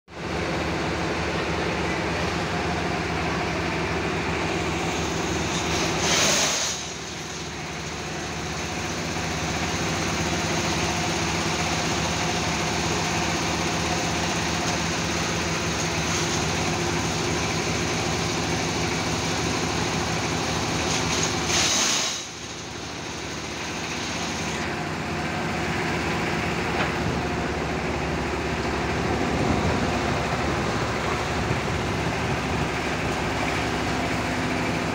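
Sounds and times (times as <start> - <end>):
factory machinery humming: 0.1 - 34.9
loud hiss: 5.0 - 7.2, 21.4 - 22.4.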